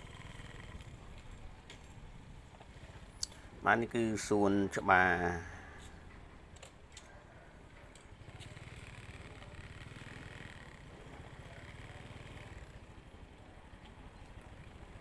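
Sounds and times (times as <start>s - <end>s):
small motorbike engine running: 0.0s - 3.6s, 7.6s - 15.0s.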